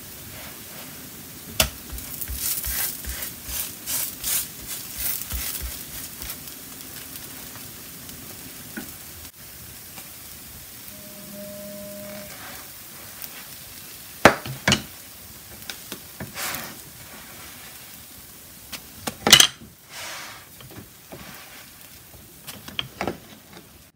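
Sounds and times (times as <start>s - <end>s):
pancakes sizzling on a griddle: 0.0s - 11.6s, 12.3s - 23.9s
spatula clacking: 1.6s - 6.5s
spatula scraping griddle: 1.9s - 6.4s.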